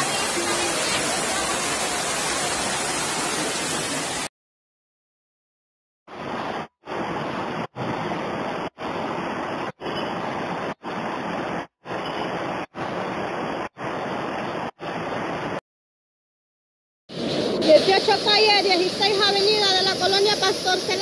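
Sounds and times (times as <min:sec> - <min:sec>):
floodwater rushing over ledge: 0:00.0 - 0:04.3, 0:17.5 - 0:21.0.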